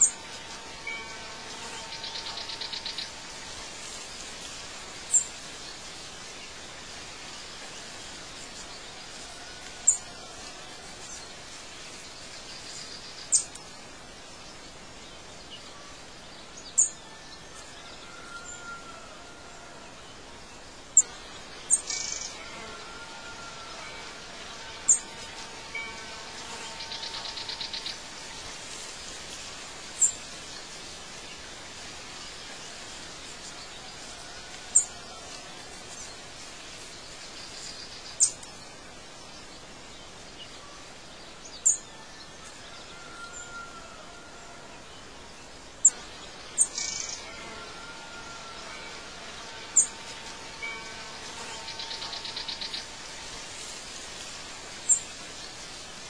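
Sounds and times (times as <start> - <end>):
outdoor background noise: 0.0 - 56.0.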